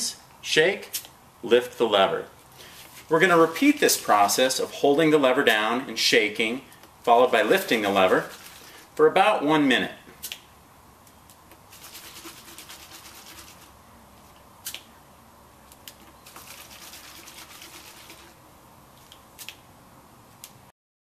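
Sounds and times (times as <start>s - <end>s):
liquid sloshing in plastic bottle: 7.6s - 8.9s, 16.1s - 18.4s.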